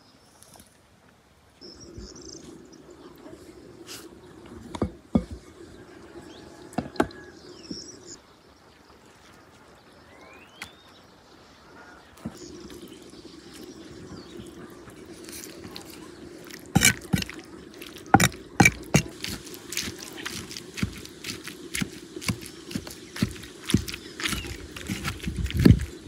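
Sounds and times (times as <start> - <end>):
steady low hum: 12.2 - 26.0.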